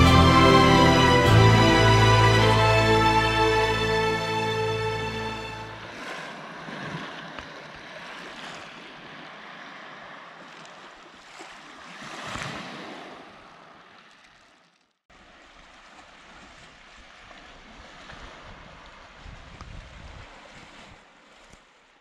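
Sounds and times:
music: 0:00.0 - 0:05.8
sea waves washing against shore: 0:00.0 - 0:14.3, 0:15.1 - 0:22.0.

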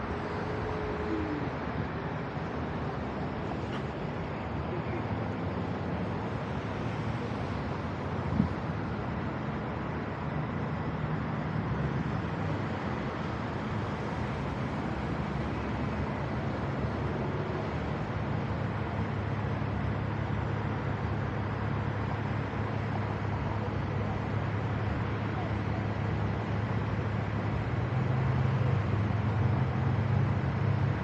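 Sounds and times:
road and traffic noise: 0:00.0 - 0:31.0
vehicle engine hum: 0:00.0 - 0:31.0.

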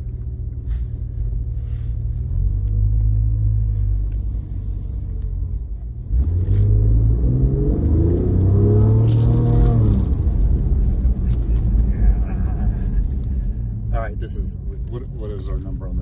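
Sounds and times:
car engine accelerating: 0:00.0 - 0:16.0.

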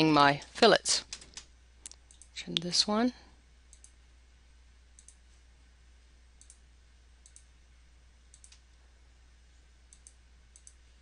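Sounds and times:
low steady hum: 0:00.0 - 0:11.0
computer mouse clicks: 0:01.1 - 0:02.3, 0:03.7 - 0:04.0, 0:05.0 - 0:05.2, 0:06.4 - 0:06.6, 0:07.2 - 0:07.5, 0:08.3 - 0:08.7, 0:09.9 - 0:10.8.

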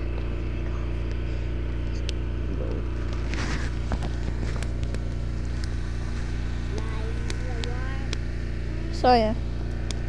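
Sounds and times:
low engine hum: 0:00.0 - 0:10.0
sharp clicks: 0:06.7 - 0:08.2.

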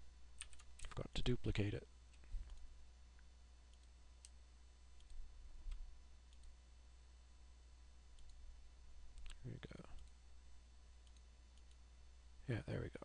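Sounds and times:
steady low hum: 0:00.0 - 0:13.0
computer mouse and keyboard clicks: 0:00.4 - 0:01.0.

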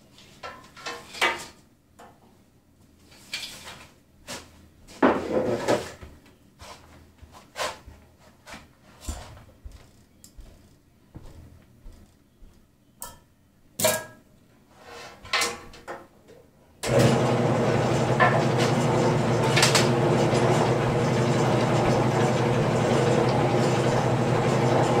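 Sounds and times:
wood lathe humming: 0:16.8 - 0:25.0.

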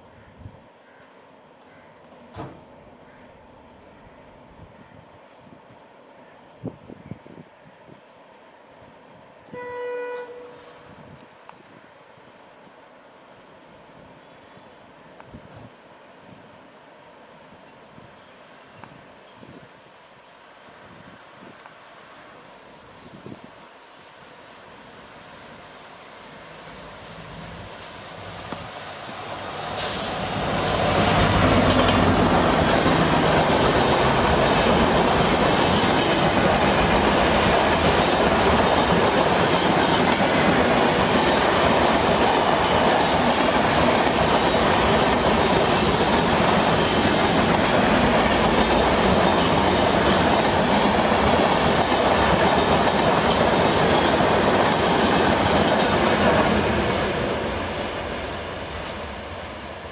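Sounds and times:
train coaches rolling on rails: 0:20.5 - 0:59.9.

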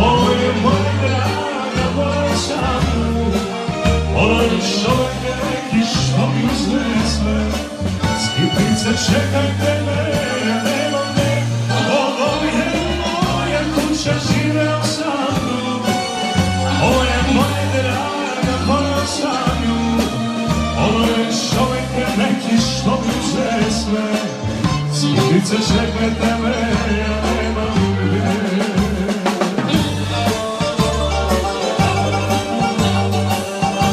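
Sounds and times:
keyboard: 0:00.0 - 0:33.9
repeating bass line: 0:00.0 - 0:33.9
steady beat: 0:00.0 - 0:33.9
saxophone: 0:14.8 - 0:33.9.

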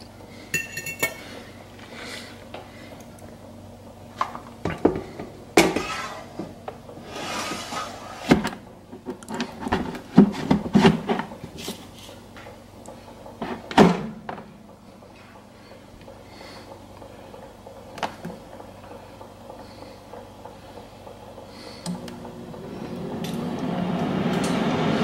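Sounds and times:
basket scraping: 0:07.0 - 0:08.5
air fryer basket knocks and clatters: 0:13.4 - 0:14.5.

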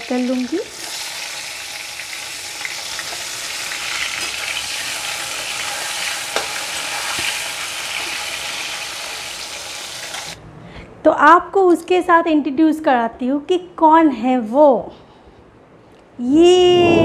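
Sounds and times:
vegetables sizzling in hot oil: 0:00.0 - 0:10.4.

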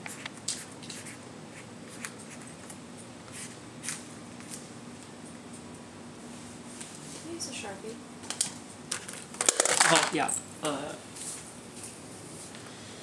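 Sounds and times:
markers scratching on paper: 0:00.0 - 0:02.7, 0:03.3 - 0:04.0
low room hum: 0:00.0 - 0:13.0.

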